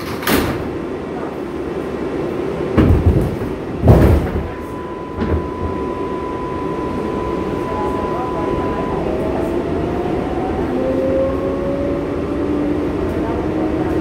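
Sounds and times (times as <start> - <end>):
subway train equipment humming: 0.0 - 14.0
steady high tone: 4.5 - 12.3.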